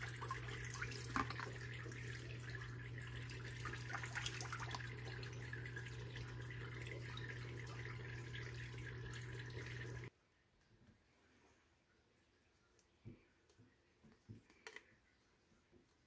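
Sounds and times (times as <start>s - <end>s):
aquarium water splashing: 0.0s - 10.1s
pump hum: 0.0s - 10.1s.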